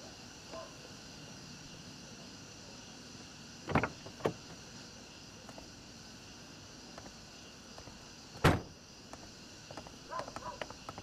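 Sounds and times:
faint background hiss: 0:00.0 - 0:11.0
car door shutting: 0:03.7 - 0:04.4, 0:08.4 - 0:08.7.

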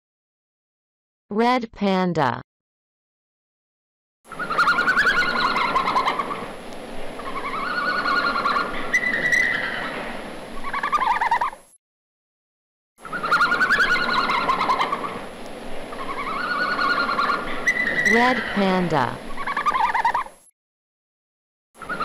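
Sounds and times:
red panda high wavering calls: 0:04.3 - 0:06.4, 0:07.2 - 0:10.0, 0:10.6 - 0:11.7, 0:13.0 - 0:15.2, 0:15.9 - 0:20.4, 0:21.8 - 0:22.0.

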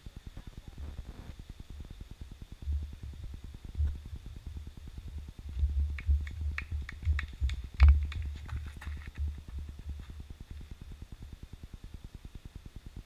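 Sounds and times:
wind rumble on microphone: 0:00.0 - 0:13.0
running footsteps: 0:05.6 - 0:10.7.

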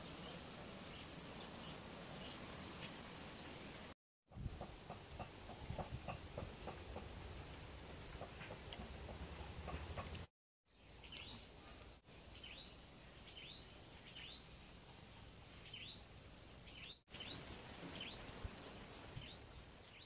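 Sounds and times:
bird chirping: 0:10.7 - 0:14.6, 0:15.5 - 0:20.0
faint background hiss: 0:10.7 - 0:20.0.

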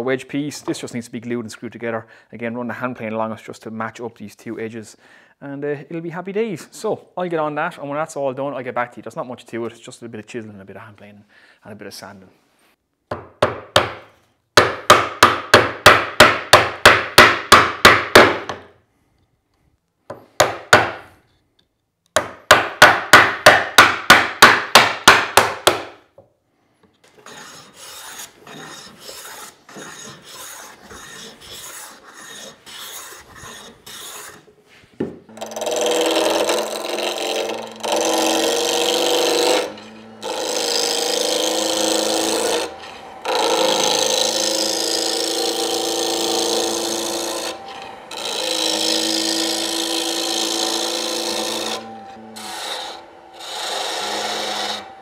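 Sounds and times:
hammer striking chisel: 0:13.1 - 0:18.7, 0:20.1 - 0:21.1, 0:22.2 - 0:26.0, 0:35.0 - 0:54.9
hand plane strokes on wood: 0:27.0 - 0:55.0
power tool working wood: 0:35.3 - 0:55.0.

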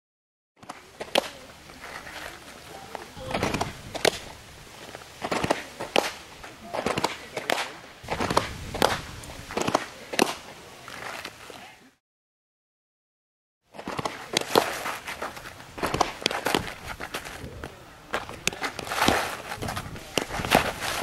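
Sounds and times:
faint voices: 0:00.6 - 0:08.2, 0:14.1 - 0:21.0
soft scuffing: 0:13.8 - 0:21.0.

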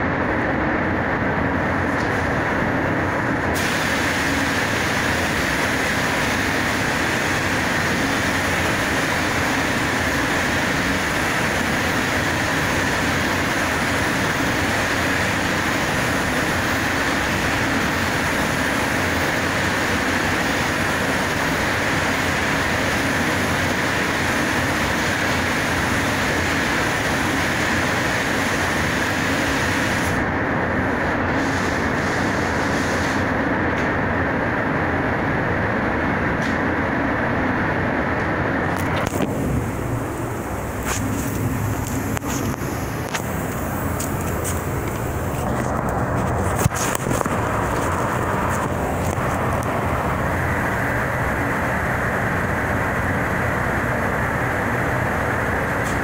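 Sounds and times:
ventilation air rushing: 0:00.0 - 0:56.0
high hiss: 0:03.5 - 0:30.2, 0:39.1 - 0:46.4.

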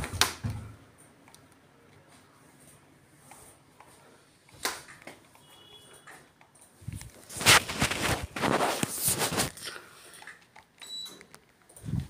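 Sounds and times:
air conditioner electronic beep: 0:10.8 - 0:11.2.

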